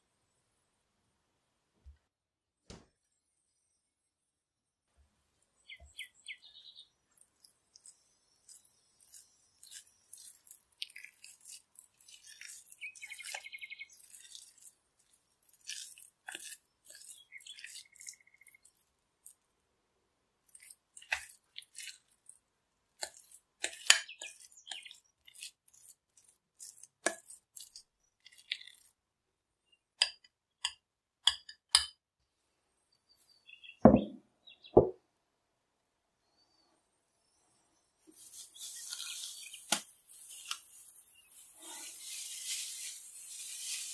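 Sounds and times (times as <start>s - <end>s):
utensil scraping glass bowl: 8.5s - 18.8s, 23.0s - 28.9s, 41.3s - 43.9s.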